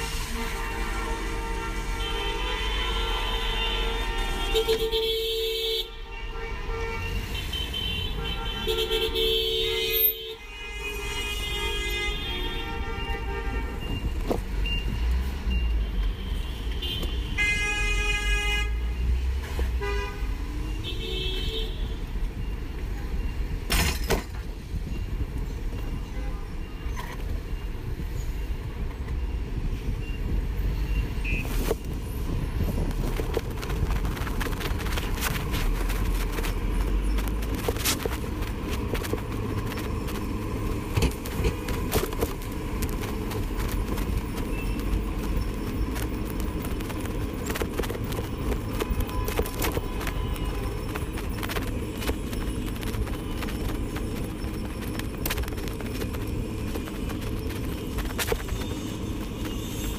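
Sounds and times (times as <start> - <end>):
passing traffic: 0.0 - 59.9
tyre rumble: 32.2 - 59.9
small rattles and clicks: 32.6 - 59.9.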